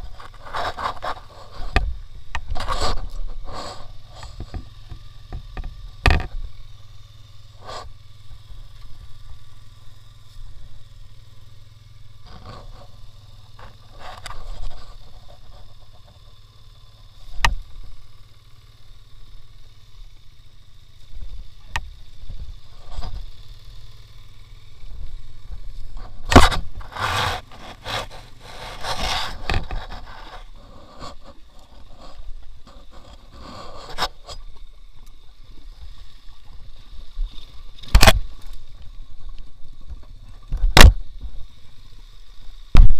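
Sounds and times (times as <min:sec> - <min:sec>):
knocks and scrapes: 0:00.0 - 0:06.4, 0:12.2 - 0:16.2, 0:25.9 - 0:34.6
motorbike engine idling: 0:00.0 - 0:42.9.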